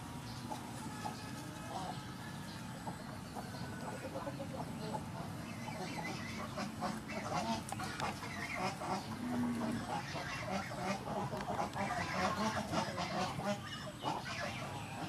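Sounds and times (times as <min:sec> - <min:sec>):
fowl calling: 0:00.4 - 0:15.0.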